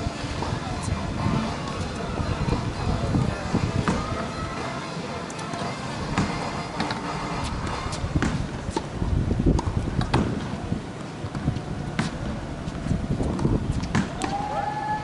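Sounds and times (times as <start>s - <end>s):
low outdoor rumble: 0.0s - 15.0s
tennis balls bouncing: 5.4s - 14.5s.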